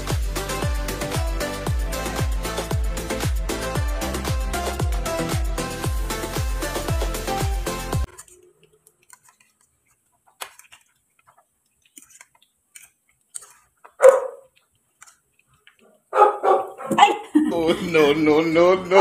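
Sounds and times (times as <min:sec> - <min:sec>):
electronic dance music: 0:00.0 - 0:08.1
dog bark: 0:14.0 - 0:14.5, 0:15.8 - 0:17.2.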